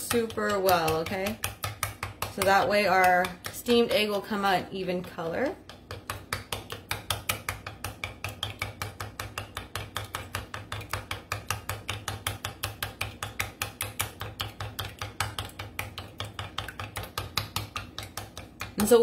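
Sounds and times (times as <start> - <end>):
chopsticks beating egg in bowl: 0.0 - 19.0.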